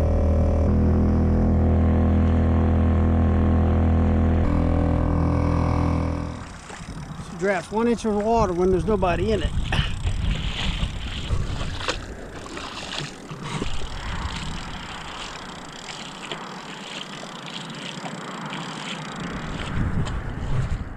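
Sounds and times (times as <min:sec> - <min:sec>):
footsteps wading through water: 0:06.2 - 0:20.9
wind buffeting microphone: 0:06.3 - 0:17.4, 0:18.2 - 0:20.9.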